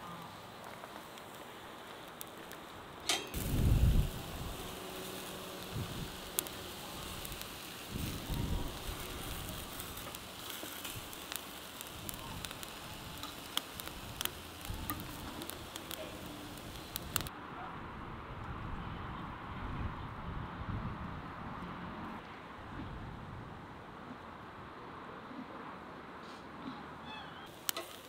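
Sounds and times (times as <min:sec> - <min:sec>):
coals crackling and popping: 0:00.0 - 0:17.3, 0:27.5 - 0:28.0
vegetables sizzling on grill: 0:00.2 - 0:17.3, 0:27.5 - 0:28.0
tongs knocking on grate: 0:03.1 - 0:03.4.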